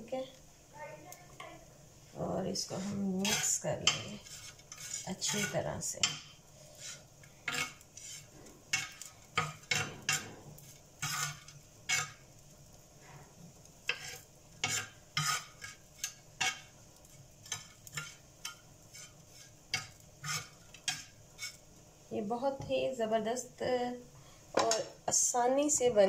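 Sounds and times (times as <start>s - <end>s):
metal blade scraping iron griddle: 2.6s - 12.3s, 13.9s - 21.7s.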